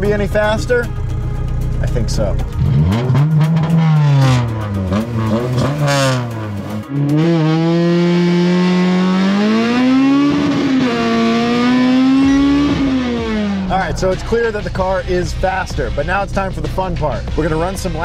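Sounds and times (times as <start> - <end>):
car engine revving and accelerating: 2.4 - 14.7.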